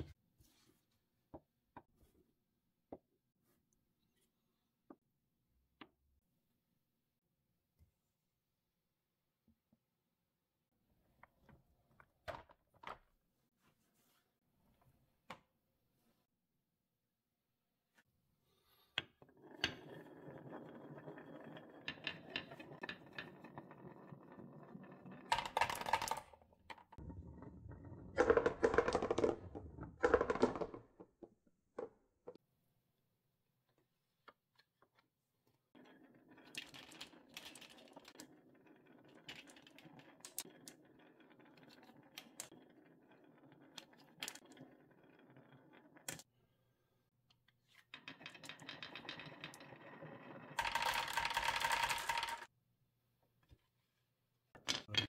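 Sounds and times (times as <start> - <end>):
marbles rolling on wooden run: 19.2 - 32.0, 35.7 - 46.3, 47.8 - 52.5.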